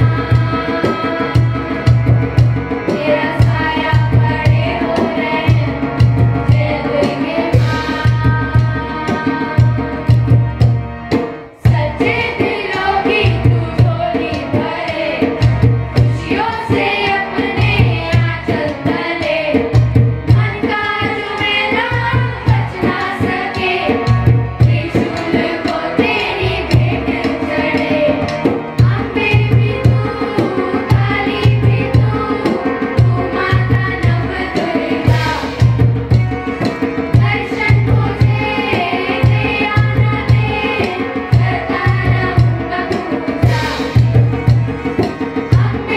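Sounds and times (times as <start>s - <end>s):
children singing into microphones: 0.0s - 45.9s
tabla: 0.0s - 45.9s
low drum beat: 35.0s - 38.6s.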